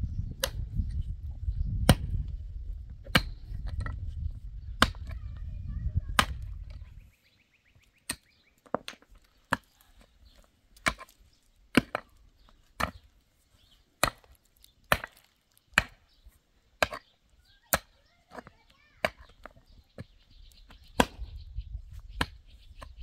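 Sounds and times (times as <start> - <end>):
pick striking stony soil: 0.4 - 1.1, 1.8 - 4.1, 8.0 - 17.1, 17.7 - 21.4.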